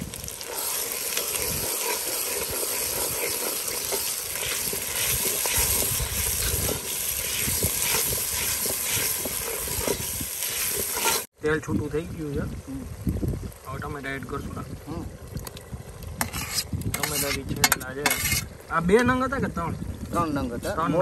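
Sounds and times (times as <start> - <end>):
paste sizzling in hot oil: 0.0 - 11.3, 16.2 - 18.6
metal ladle scraping pot: 0.4 - 11.3, 16.2 - 18.6.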